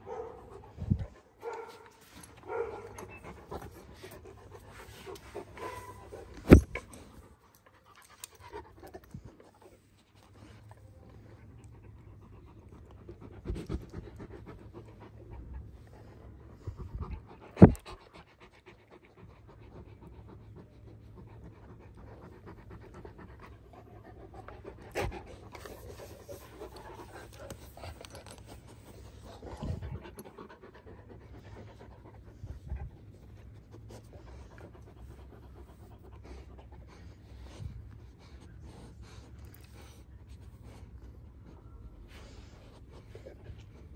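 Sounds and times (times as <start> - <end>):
dogs panting: 0.0 - 43.9.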